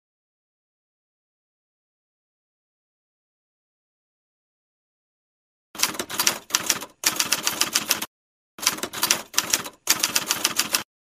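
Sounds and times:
typewriter key clacking: 0:05.8 - 0:10.8.

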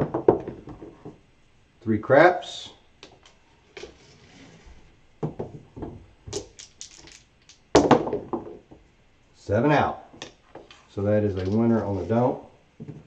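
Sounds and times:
dice clattering on table: 0:06.2 - 0:08.6
dice clicking: 0:06.3 - 0:07.6.

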